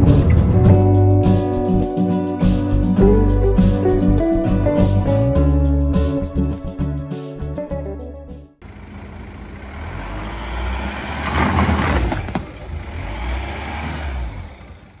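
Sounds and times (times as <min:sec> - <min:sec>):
car engine rumble: 0:00.0 - 0:06.4, 0:08.6 - 0:15.0
tyre noise on asphalt: 0:08.6 - 0:15.0.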